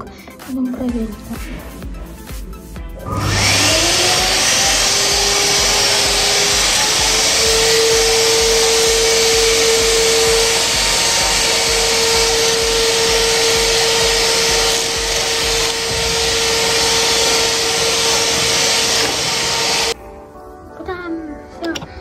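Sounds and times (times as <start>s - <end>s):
vacuum cleaner running: 3.0s - 20.0s.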